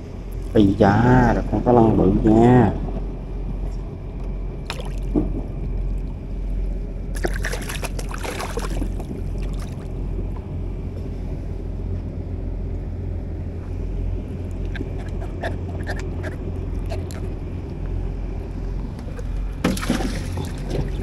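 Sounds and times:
steady low hum: 0:00.0 - 0:21.0
fish thrashing and splashing: 0:04.7 - 0:05.2, 0:07.1 - 0:10.0, 0:19.0 - 0:21.0.

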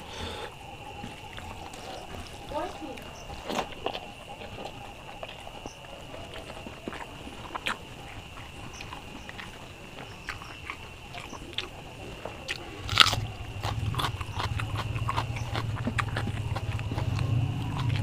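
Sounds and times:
close chewing: 0:00.0 - 0:18.0
crunchy bite: 0:00.0 - 0:18.0.

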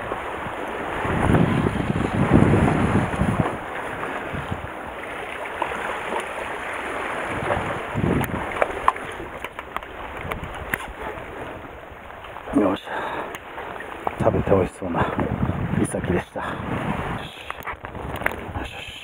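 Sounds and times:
wind buffeting microphone: 0:00.0 - 0:12.5, 0:13.4 - 0:18.8
sea water washing against concrete: 0:00.0 - 0:19.0.

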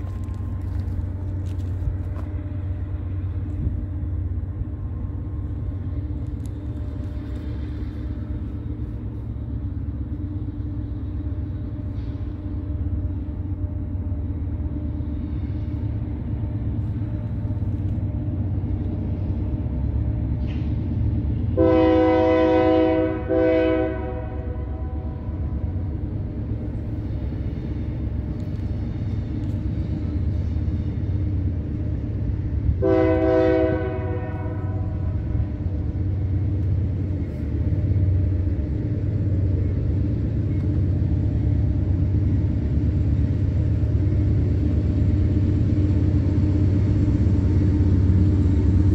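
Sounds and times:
low rumble of train: 0:00.0 - 0:48.9
locomotive air horn blasts: 0:21.5 - 0:25.4, 0:32.8 - 0:35.5.

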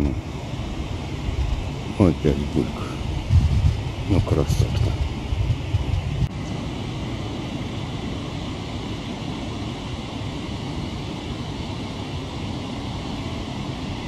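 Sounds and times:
rushing background noise: 0:00.0 - 0:14.0
low rumble: 0:00.8 - 0:06.4.

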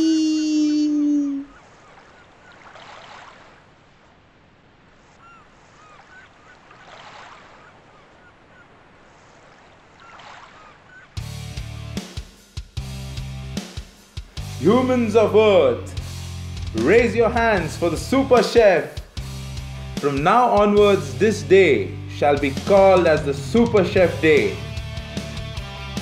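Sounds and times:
loud held voice-like cry: 0:00.0 - 0:01.5
ocean waves washing in: 0:00.5 - 0:11.2
music with guitar and drums: 0:11.2 - 0:26.0.

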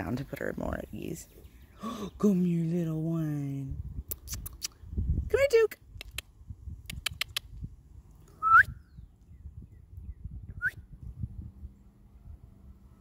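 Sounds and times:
sharp clicks: 0:06.0 - 0:07.5
person whistling rising whistles: 0:08.4 - 0:08.8.

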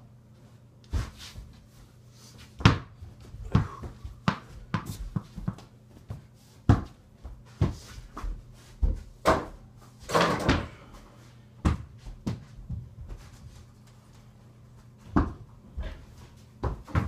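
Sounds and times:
basketball bouncing and knocking: 0:02.6 - 0:10.7, 0:11.6 - 0:12.9, 0:15.1 - 0:15.5, 0:16.6 - 0:17.0.

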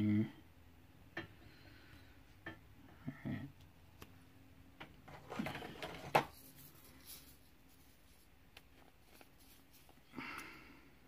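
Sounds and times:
soft rustle: 0:05.2 - 0:10.4.

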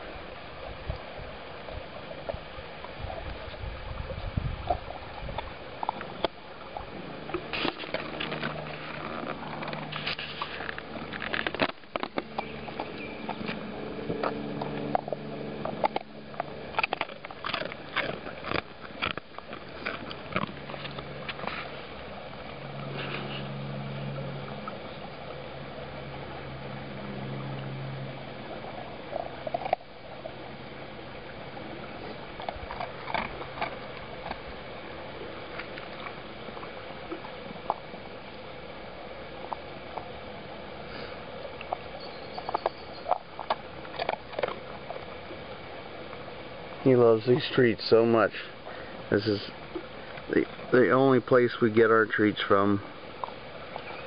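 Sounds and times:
low steady hum: 0:00.0 - 0:54.0
dog crunching a biscuit: 0:07.3 - 0:21.7.

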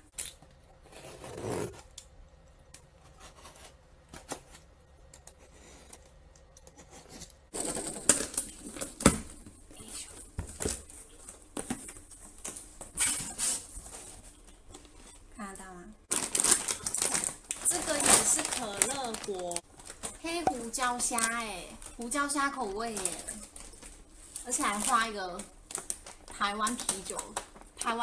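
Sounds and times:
tape tearing and cardboard rustling: 0:00.8 - 0:02.0, 0:03.0 - 0:04.7, 0:06.8 - 0:09.4.

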